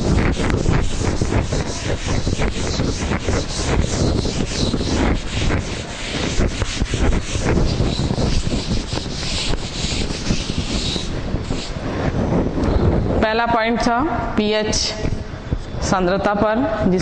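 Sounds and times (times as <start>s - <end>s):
duster rubbing a chalkboard: 0.0s - 12.2s.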